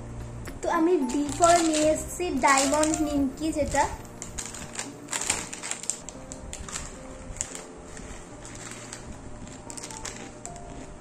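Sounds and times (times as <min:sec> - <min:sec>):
plastic snack packet crinkling: 0:01.0 - 0:11.0
crunching fried snack sticks: 0:04.2 - 0:07.8, 0:08.4 - 0:11.0.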